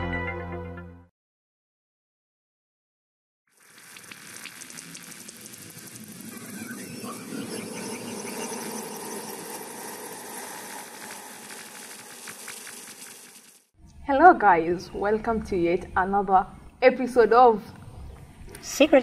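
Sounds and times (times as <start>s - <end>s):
crackling hissing sound effect: 3.5s - 13.8s.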